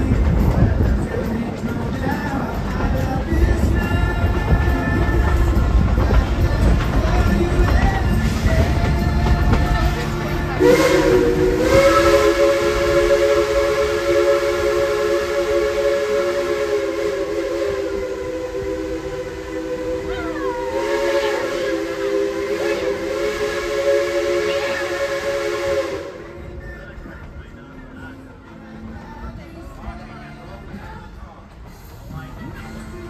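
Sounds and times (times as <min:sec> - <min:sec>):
steam hissing: 0:02.2 - 0:27.0
steam locomotive chime whistle: 0:10.5 - 0:27.1.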